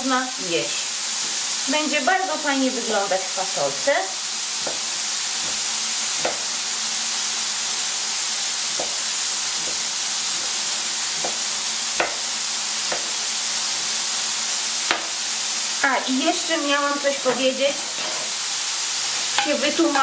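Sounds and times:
bacon sizzling in a frying pan: 0:00.0 - 0:20.0
knife tapping on cutting board: 0:04.6 - 0:04.8, 0:06.2 - 0:06.4, 0:08.8 - 0:09.0, 0:11.2 - 0:11.4, 0:12.0 - 0:12.2, 0:12.9 - 0:13.1, 0:14.9 - 0:15.1.

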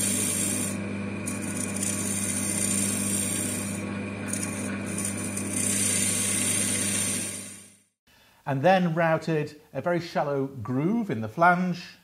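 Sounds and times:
lathe motor humming: 0:00.0 - 0:07.8
turning tool cutting wood: 0:00.0 - 0:07.8.

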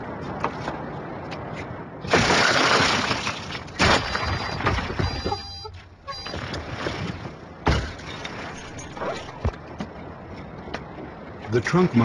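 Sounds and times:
car window glass shattering: 0:02.1 - 0:05.4
high beeping tones: 0:04.1 - 0:06.4.

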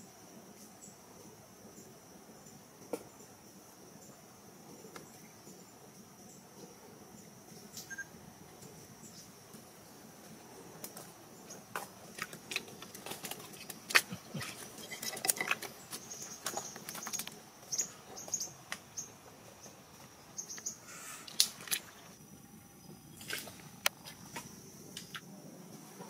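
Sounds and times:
high insect buzz: 0:00.0 - 0:26.0
boots squelching in mud: 0:11.8 - 0:17.2.

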